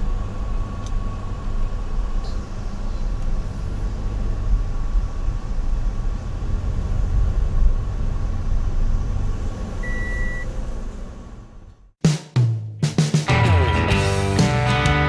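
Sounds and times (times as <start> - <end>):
van road and engine rumble: 0.0 - 12.0
short high beep: 9.8 - 10.4.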